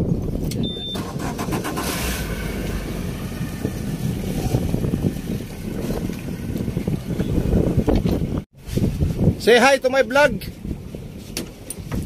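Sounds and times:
short high beep: 0.6 - 1.1
boat engine idling: 0.8 - 8.4.

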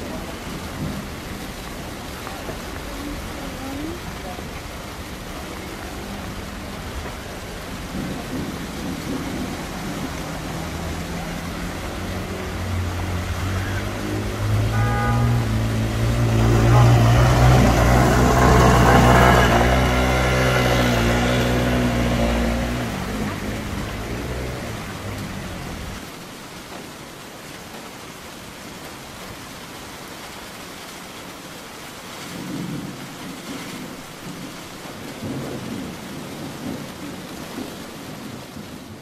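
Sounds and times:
hiss of rain and water: 0.0 - 39.0
motor scooter engine: 16.4 - 26.0.

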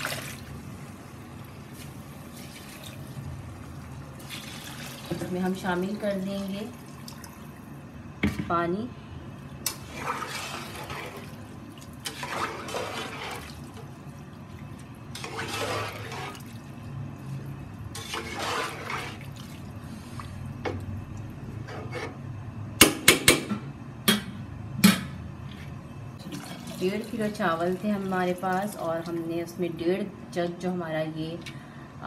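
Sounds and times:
water and rice sloshing in pot: 0.0 - 7.8, 9.4 - 20.6, 26.2 - 29.3.

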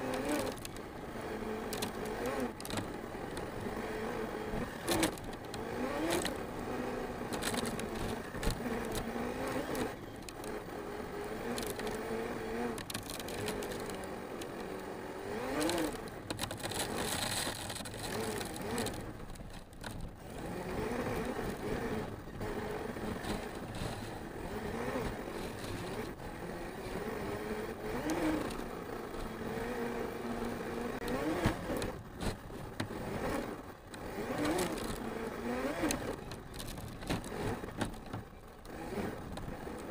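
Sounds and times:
chassis knocking and scraping: 15.4 - 26.2.

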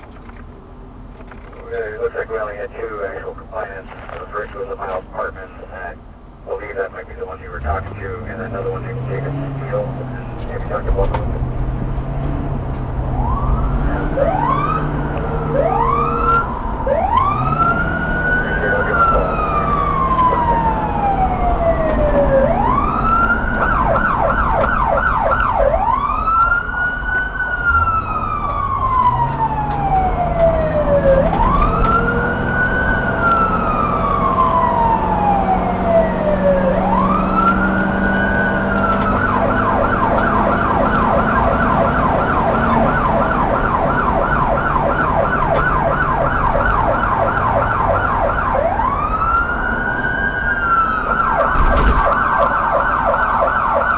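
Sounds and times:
engine and road rumble: 0.0 - 53.9
police siren wailing and yelping: 6.5 - 11.4, 13.0 - 53.9.

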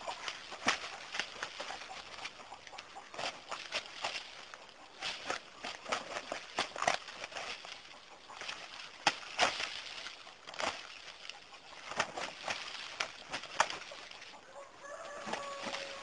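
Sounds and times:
wing slaps and scuffles: 0.5 - 2.3, 8.4 - 11.0, 11.8 - 14.0.

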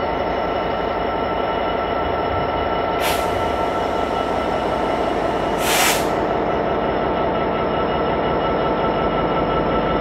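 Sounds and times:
diesel locomotive engine rumbling: 0.0 - 10.0
short hisses: 3.0 - 4.2, 5.5 - 6.3.

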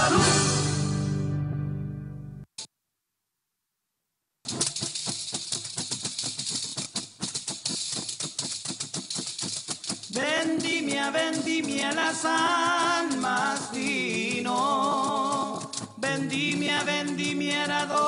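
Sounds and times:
group of voices singing: 0.0 - 0.9, 10.2 - 18.0.

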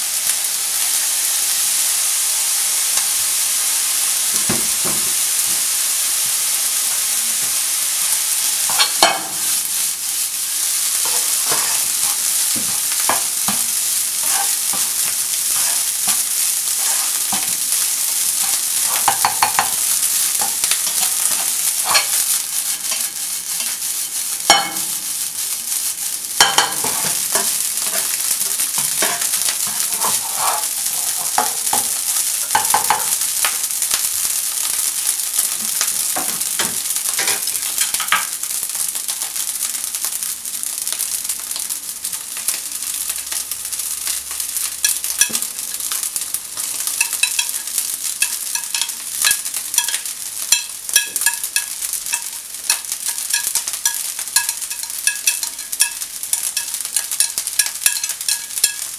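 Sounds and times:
rice sizzling in a frying pan: 0.0 - 58.9
utensil scraping a pan: 11.0 - 17.6, 20.4 - 25.0, 28.8 - 31.9.

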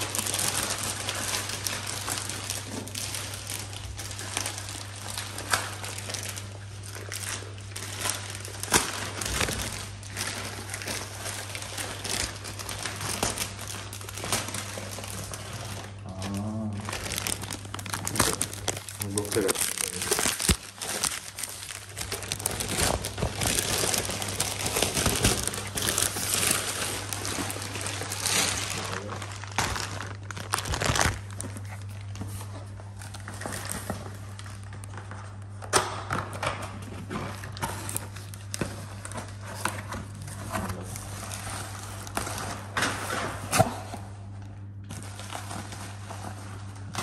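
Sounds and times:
plastic bag and clothing rustling: 0.0 - 35.5, 44.9 - 47.0
steady low hum: 0.0 - 47.0.

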